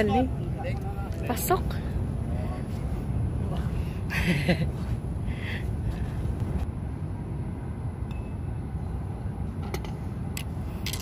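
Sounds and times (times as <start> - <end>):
low outdoor rumble: 0.0 - 11.0.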